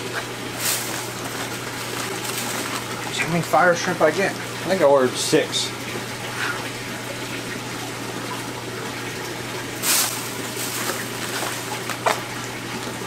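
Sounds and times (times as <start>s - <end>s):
low pump hum: 0.0s - 13.0s
plastic bag crackling: 0.5s - 3.6s, 9.8s - 12.4s
water rushing: 7.9s - 13.0s.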